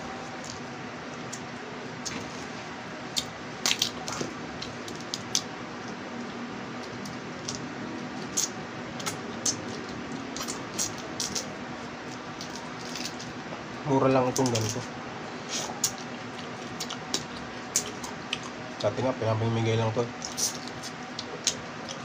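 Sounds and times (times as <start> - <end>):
crab shells cracking: 3.2 - 6.0, 12.1 - 13.3.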